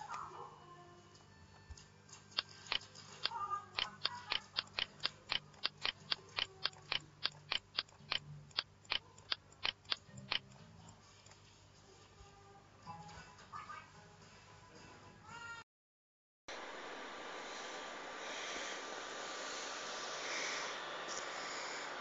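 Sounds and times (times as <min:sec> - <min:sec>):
mouse button clicking: 0:03.8 - 0:10.5.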